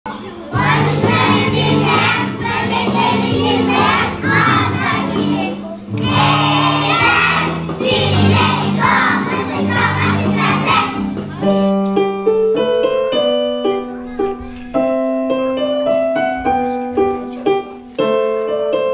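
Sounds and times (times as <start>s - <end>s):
instrumental accompaniment: 0.1s - 18.9s
children's choir singing: 0.5s - 11.4s.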